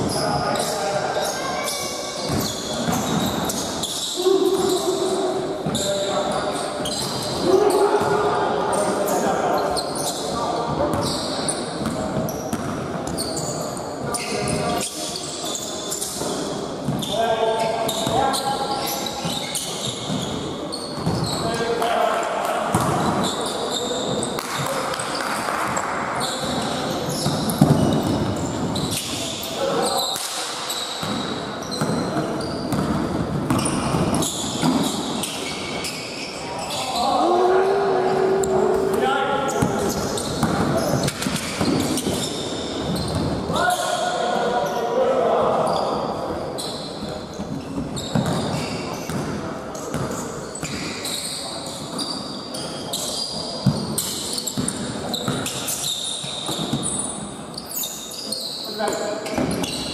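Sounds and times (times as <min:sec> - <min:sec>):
players' voices: 0:00.0 - 0:55.8
sneaker squeaks: 0:00.0 - 0:59.9
ball bouncing: 0:27.2 - 0:28.3
basketball bouncing on hard floor: 0:40.4 - 0:42.2, 0:48.1 - 0:49.3.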